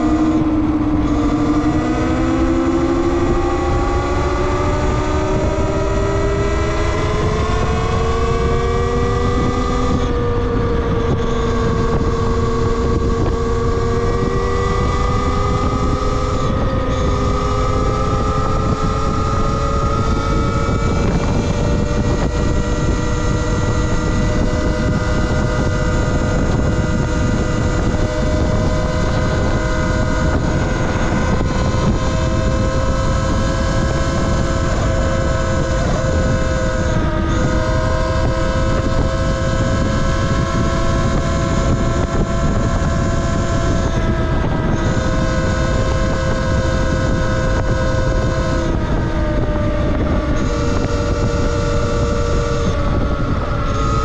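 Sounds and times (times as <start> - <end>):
electric motor whine: 0.0 - 54.0
wind rush on microphone: 0.0 - 54.0.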